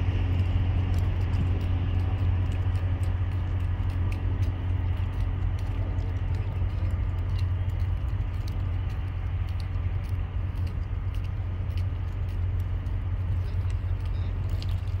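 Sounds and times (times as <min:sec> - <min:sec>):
ship engine rumble: 0:00.0 - 0:15.0
faint ticks: 0:00.2 - 0:15.0.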